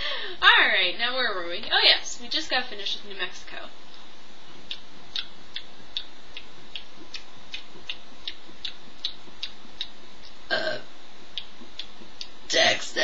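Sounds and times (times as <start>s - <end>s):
faint steady hiss: 0.0s - 13.0s
steady rhythmic ticking: 3.9s - 10.7s, 11.3s - 12.6s.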